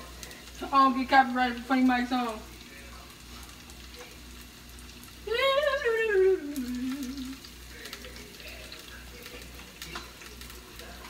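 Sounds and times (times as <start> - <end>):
onions sizzling in a skillet: 0.0 - 11.0
person humming: 6.1 - 7.5.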